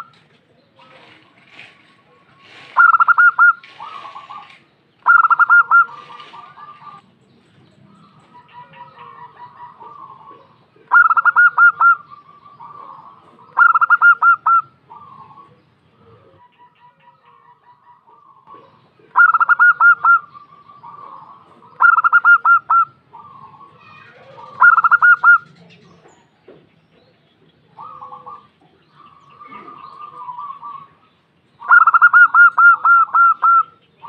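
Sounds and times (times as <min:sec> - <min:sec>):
doves cooing: 0:00.0 - 0:07.2, 0:07.8 - 0:34.0.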